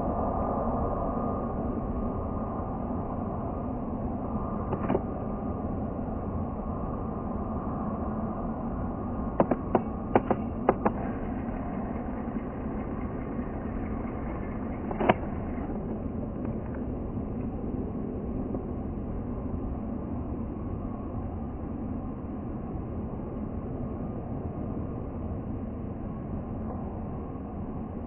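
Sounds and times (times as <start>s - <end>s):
jet engines rumbling: 0.0s - 28.0s
sharp clicks: 9.4s - 11.2s.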